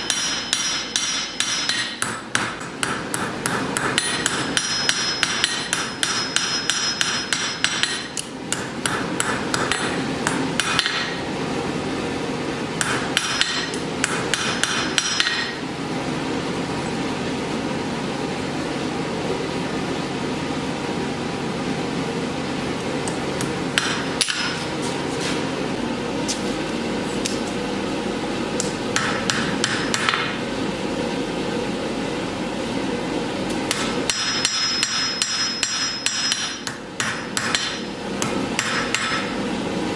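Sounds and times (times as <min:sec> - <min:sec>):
hammer ringing on anvil: 0:00.0 - 0:11.2, 0:12.8 - 0:15.6, 0:23.8 - 0:24.6, 0:33.7 - 0:37.9, 0:38.6 - 0:39.4
steady background noise: 0:00.0 - 0:39.9.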